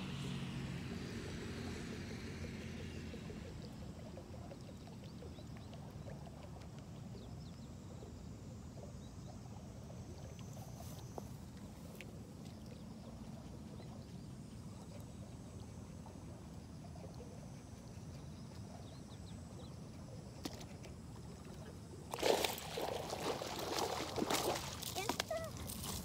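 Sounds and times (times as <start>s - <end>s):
steady low rumble: 0.8s - 20.4s.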